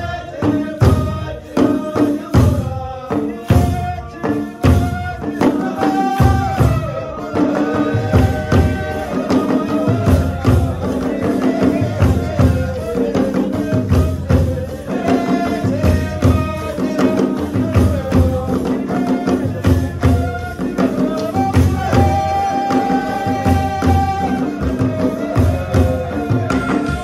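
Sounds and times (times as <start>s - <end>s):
drums beating: 0.0s - 27.0s.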